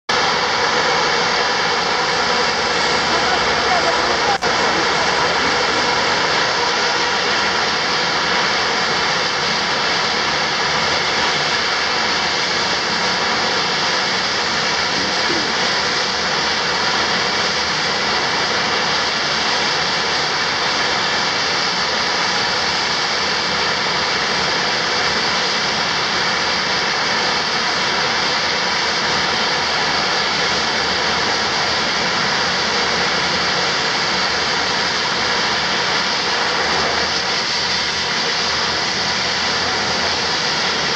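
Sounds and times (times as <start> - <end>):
turboprop engines idling: 0.1 - 40.9.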